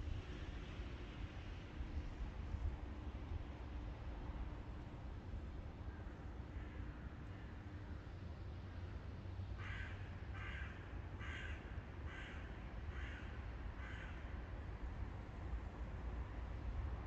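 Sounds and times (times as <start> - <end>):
crow cawing: 9.6 - 14.2.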